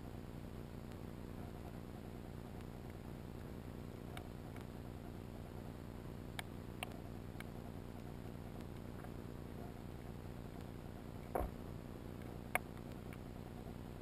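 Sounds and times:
sharp underwater clicks: 12.2 - 13.3.

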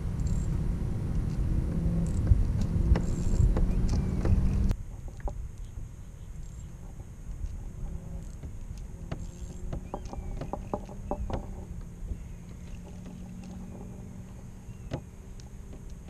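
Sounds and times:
steady low hum: 0.0 - 16.0
water lapping against kayak hulls: 0.0 - 16.0
wind on microphone: 0.0 - 16.0
sharp clicks and knocks: 2.1 - 5.7, 7.4 - 16.0.

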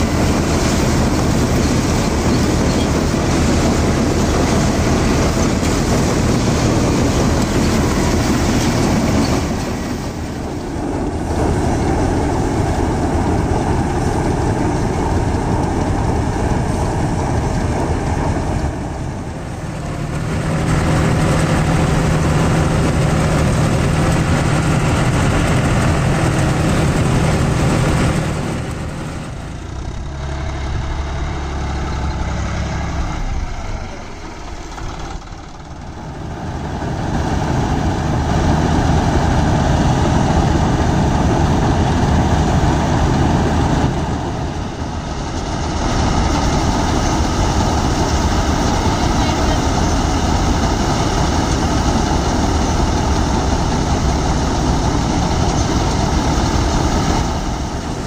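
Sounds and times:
diesel engine running: 0.0 - 58.0
threshing machinery: 0.0 - 58.0.

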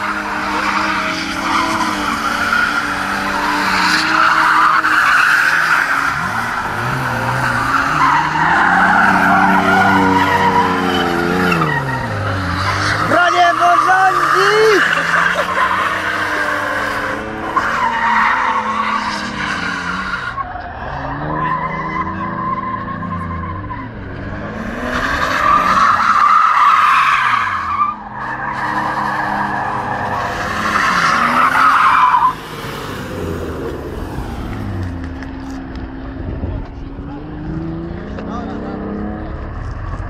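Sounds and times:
car engine revving hard: 0.0 - 20.1.

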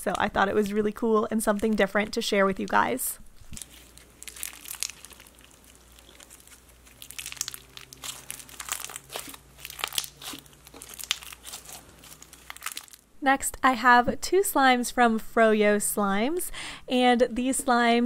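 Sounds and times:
crunchy slime squeezed by hand: 3.5 - 13.0.

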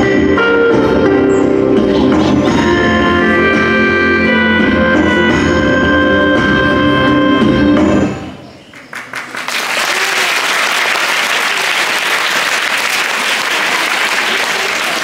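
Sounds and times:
backing music: 0.0 - 8.4
audience applause: 8.7 - 15.0.

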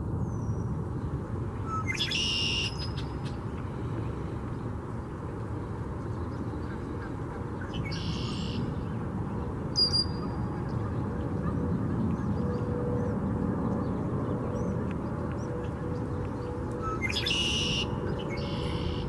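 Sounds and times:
birds calling: 6.0 - 13.1, 13.9 - 19.0.

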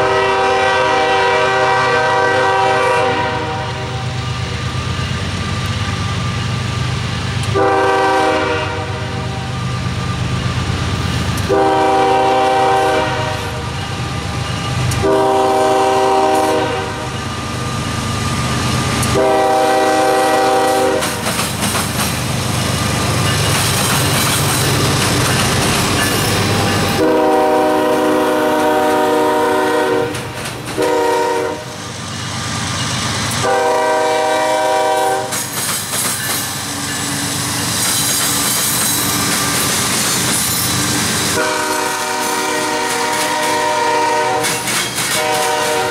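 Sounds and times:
locomotive air horn blasts: 0.0 - 4.2, 7.5 - 9.5, 11.4 - 13.7, 14.9 - 17.1, 19.0 - 21.2, 27.0 - 31.8, 33.4 - 35.4, 41.3 - 45.9
diesel locomotives rumbling: 0.0 - 45.9
train wheels clattering: 10.3 - 31.4, 32.6 - 45.9.

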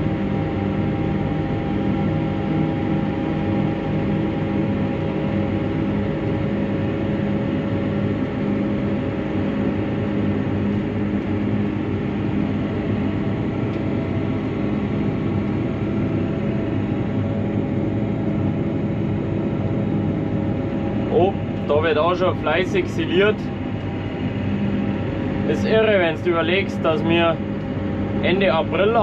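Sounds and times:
tractor diesel engine running: 9.4 - 29.0.

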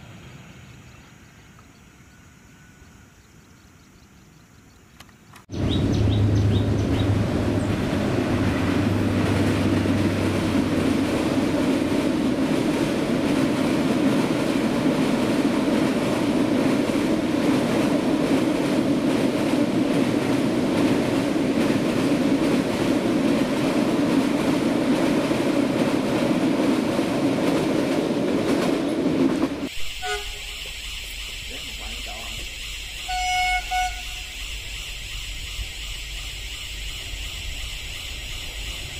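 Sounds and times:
locomotive hum: 5.5 - 38.9
train wheels rumbling on rails: 5.5 - 38.9.

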